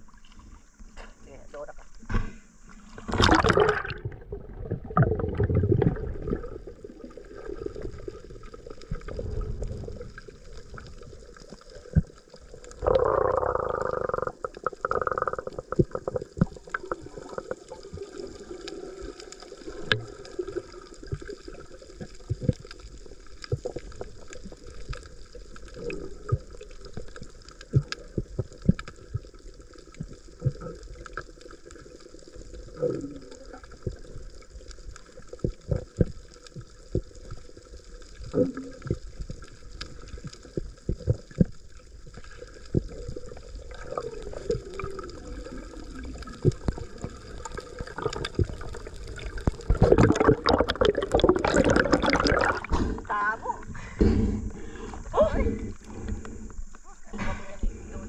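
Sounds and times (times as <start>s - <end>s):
water gurgling and sloshing: 0.0s - 58.0s
rush of water: 2.8s - 21.3s, 40.9s - 53.2s.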